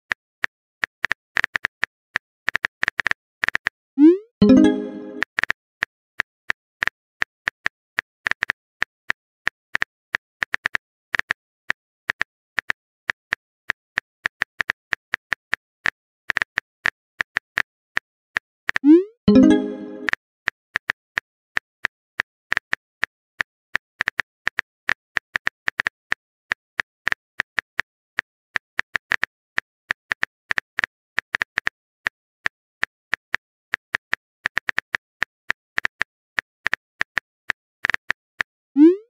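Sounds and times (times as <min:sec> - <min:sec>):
keyboard typing clicks: 0:04.0 - 0:05.3, 0:18.8 - 0:20.2.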